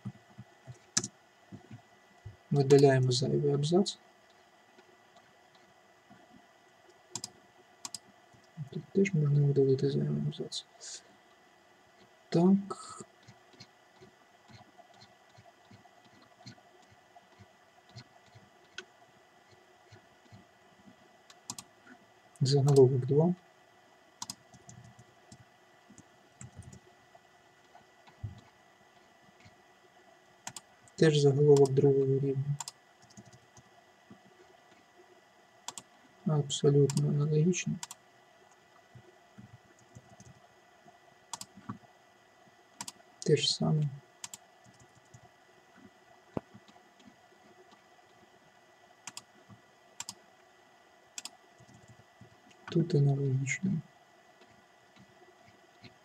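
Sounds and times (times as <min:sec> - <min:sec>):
computer mouse clicks: 0:00.0 - 0:01.8, 0:07.1 - 0:08.6, 0:21.3 - 0:21.7, 0:22.6 - 0:22.9, 0:24.2 - 0:26.8, 0:30.4 - 0:31.8, 0:32.6 - 0:33.7, 0:35.6 - 0:35.9, 0:36.9 - 0:37.1, 0:37.8 - 0:38.6, 0:39.7 - 0:40.4, 0:41.3 - 0:41.8, 0:42.8 - 0:43.0, 0:44.2 - 0:45.3, 0:49.0 - 0:49.3, 0:50.0 - 0:50.2, 0:51.2 - 0:52.8
faint room noise: 0:00.0 - 0:56.0.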